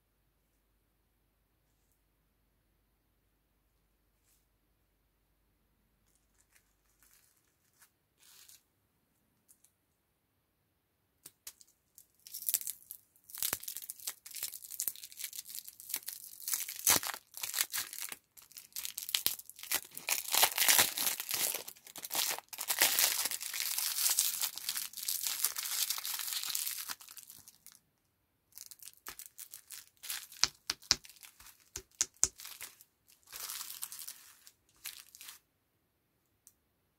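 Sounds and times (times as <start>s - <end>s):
plastic wrapper crinkling: 12.2s - 27.8s, 28.6s - 35.4s.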